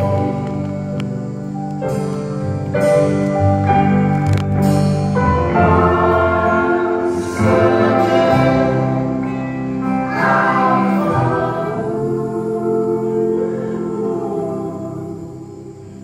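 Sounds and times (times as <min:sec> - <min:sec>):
voices singing a slow chorus: 0:00.0 - 0:01.1, 0:05.2 - 0:16.0
held instrumental chords: 0:00.0 - 0:16.0.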